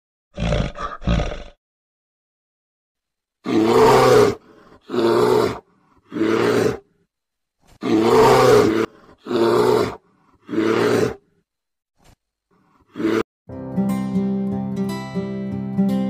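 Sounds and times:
bear roaring: 0:00.4 - 0:01.6, 0:03.4 - 0:06.9, 0:07.8 - 0:11.3, 0:12.8 - 0:13.3.

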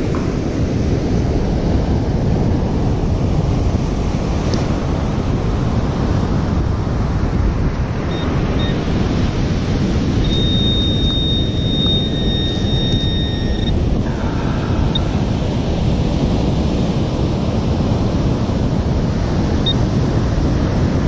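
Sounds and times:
wind on microphone: 0:00.0 - 0:21.0
steady high tone: 0:08.0 - 0:09.0, 0:09.9 - 0:15.4
metal detector beeps: 0:08.0 - 0:13.9, 0:14.8 - 0:15.1, 0:19.6 - 0:19.8.

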